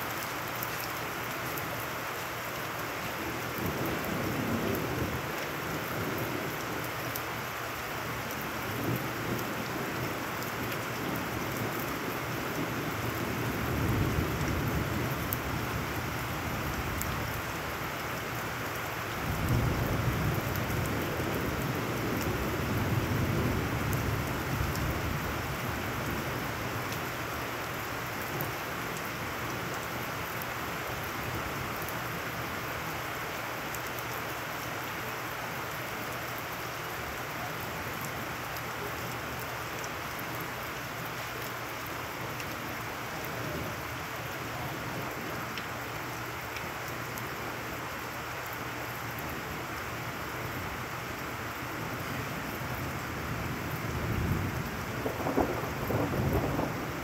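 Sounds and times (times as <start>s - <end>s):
heavy rain on wet ground: 0.0s - 57.0s
thunder rumbling: 53.6s - 57.0s.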